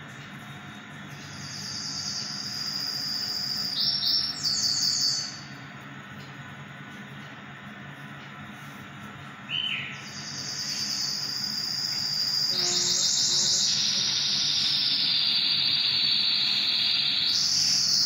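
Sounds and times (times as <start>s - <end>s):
high chirp: 1.1s - 5.6s, 9.5s - 18.0s
insect trilling: 10.2s - 18.0s.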